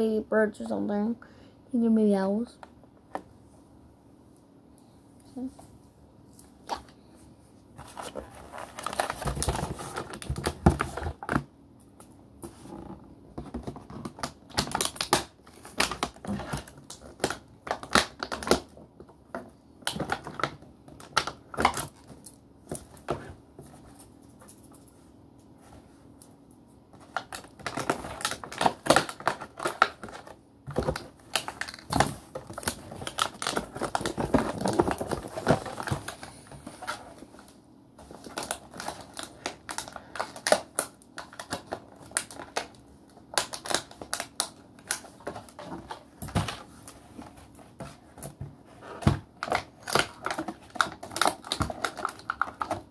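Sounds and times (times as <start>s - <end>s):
packaging rustling: 7.8s - 11.5s, 26.9s - 52.9s.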